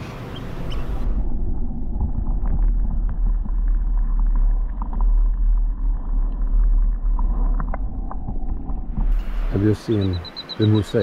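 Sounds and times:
muffled underwater rumble: 0:00.3 - 0:11.0
small underwater clicks: 0:02.0 - 0:08.9.

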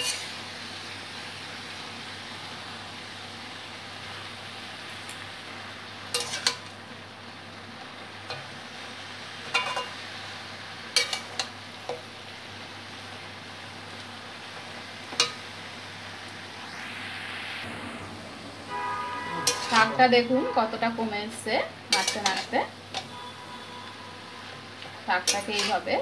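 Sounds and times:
metal spatula scraping pan: 0:00.0 - 0:00.3, 0:19.4 - 0:20.1, 0:21.9 - 0:23.2, 0:25.2 - 0:25.9
vegetables sizzling in oil: 0:00.0 - 0:26.0.

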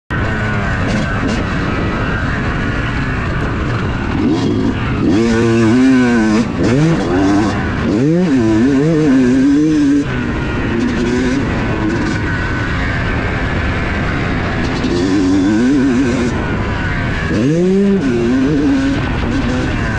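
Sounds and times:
two-stroke motorcycle engine revving: 0:00.1 - 0:19.9
wind rush: 0:00.1 - 0:19.9.

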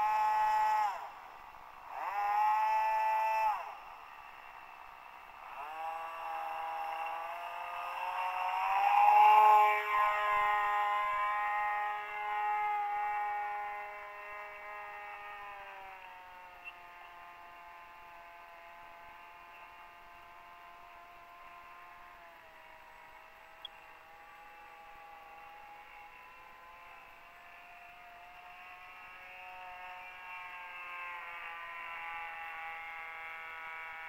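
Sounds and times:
model plane motor whine: 0:00.0 - 0:34.0.

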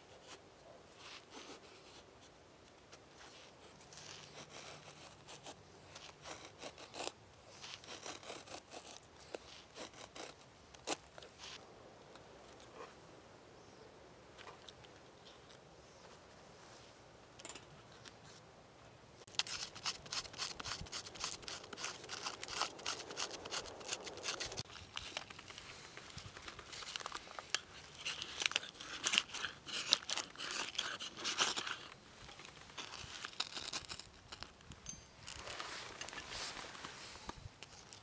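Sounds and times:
knife shaving wood: 0:03.0 - 0:11.6, 0:19.2 - 0:38.0.

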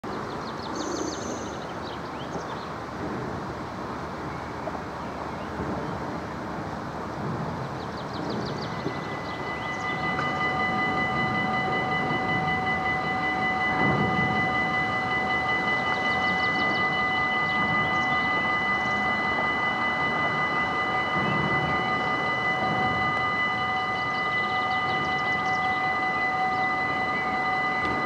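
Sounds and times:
level crossing warning bell: 0:06.7 - 0:28.0.

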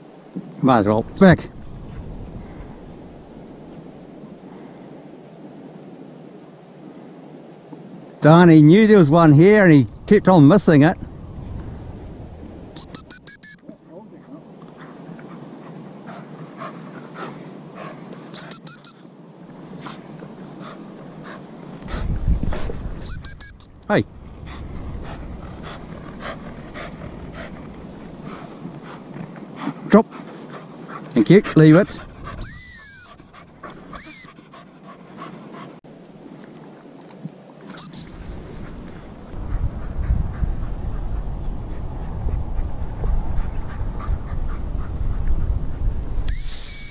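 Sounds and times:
low wind rumble: 0:00.0 - 0:18.4, 0:19.1 - 0:46.9
shrill dog whistle pips: 0:12.8 - 0:13.7, 0:18.3 - 0:19.0, 0:23.0 - 0:23.7, 0:32.4 - 0:33.2, 0:33.9 - 0:34.4, 0:37.8 - 0:38.1, 0:46.3 - 0:46.9
dog panting: 0:14.1 - 0:18.9, 0:19.7 - 0:35.8, 0:39.0 - 0:46.1.

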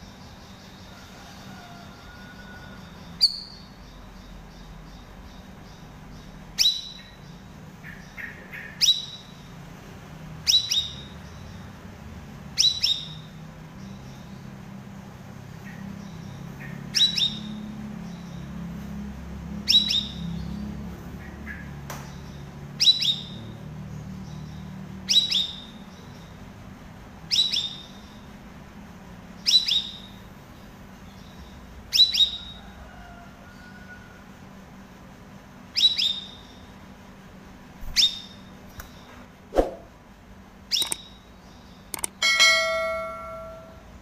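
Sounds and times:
bird high downward call: 0:42.0 - 0:44.0
bird low ringing note: 0:42.1 - 0:44.0.

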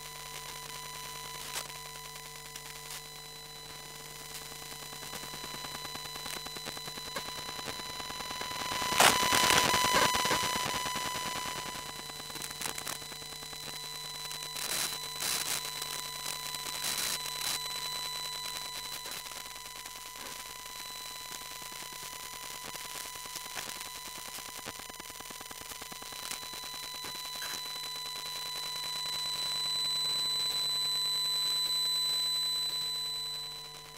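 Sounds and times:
crackling static: 0:00.0 - 0:33.9.

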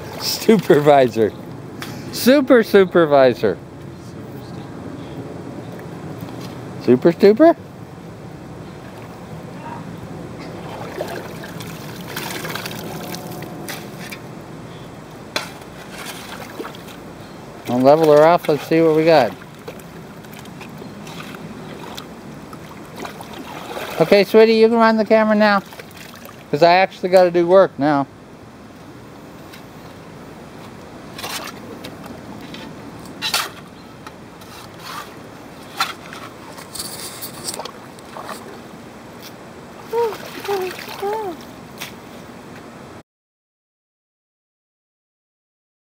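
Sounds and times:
muddy water sloshing: 0:00.0 - 0:01.5, 0:08.6 - 0:14.3, 0:15.3 - 0:26.6, 0:34.4 - 0:42.0
shovel blade scraping sludge: 0:15.4 - 0:17.0, 0:34.4 - 0:38.5.

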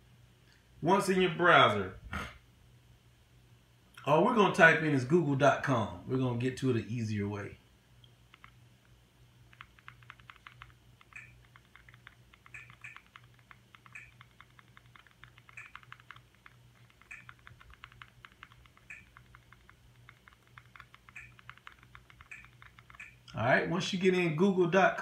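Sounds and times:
faint low hum: 0:00.0 - 0:25.0
remote buttons clicking: 0:08.0 - 0:08.6, 0:09.5 - 0:23.4.

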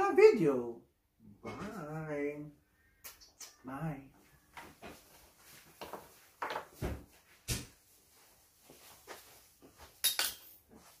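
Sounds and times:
footsteps walking away: 0:04.5 - 0:10.0.

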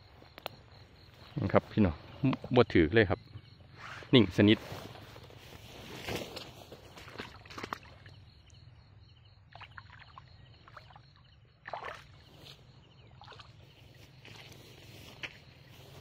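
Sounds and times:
waders splashing through water: 0:06.9 - 0:08.2, 0:09.5 - 0:11.0, 0:11.6 - 0:14.5.

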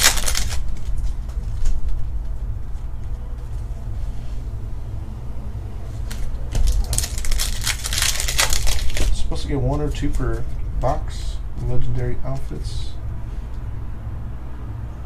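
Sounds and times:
foil pack tearing and crinkling: 0:00.0 - 0:01.7, 0:06.1 - 0:09.3
low hum: 0:00.0 - 0:15.0.

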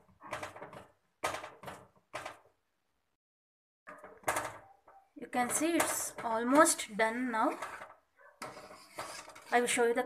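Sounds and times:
ladle scraping metal pot: 0:05.4 - 0:10.0.

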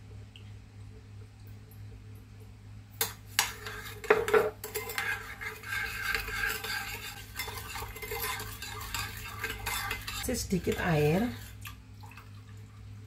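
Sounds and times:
spoon scraping bowl: 0:03.4 - 0:11.6.

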